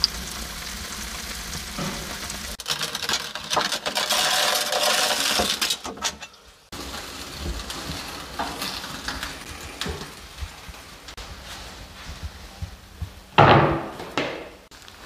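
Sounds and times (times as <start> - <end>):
fish sizzling in a baking tray: 0.0 - 5.8, 6.6 - 10.8.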